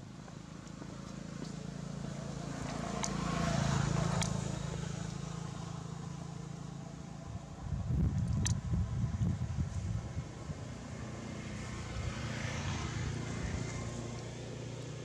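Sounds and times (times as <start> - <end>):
vehicle passing: 0.0 - 7.8, 8.7 - 15.0
sharp clicks: 8.2 - 8.6.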